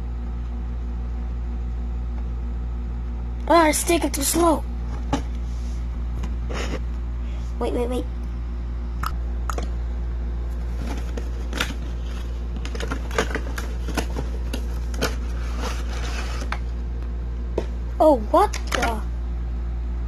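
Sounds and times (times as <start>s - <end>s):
low hum: 0.0s - 20.0s
packaging being handled: 10.6s - 16.6s.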